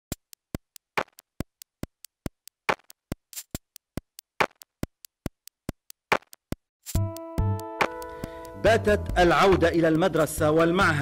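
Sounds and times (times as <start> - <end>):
ticking clicks: 0.0 - 8.7.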